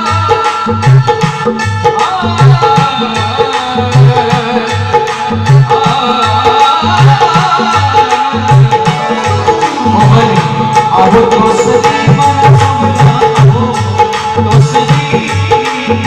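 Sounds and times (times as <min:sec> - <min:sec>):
dholak playing folk rhythm: 0:00.0 - 0:16.0
melodic instrument held notes: 0:08.9 - 0:12.2.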